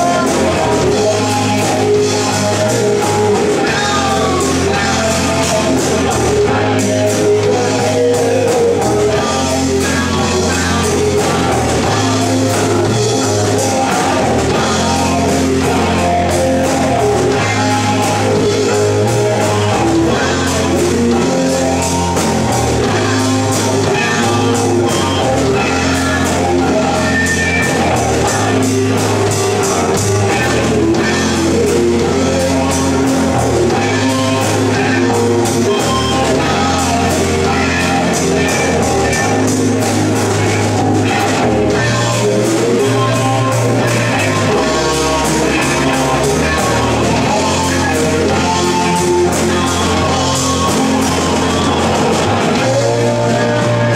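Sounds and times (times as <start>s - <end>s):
drum kit: 0.0s - 53.9s
electric guitars: 0.0s - 53.9s.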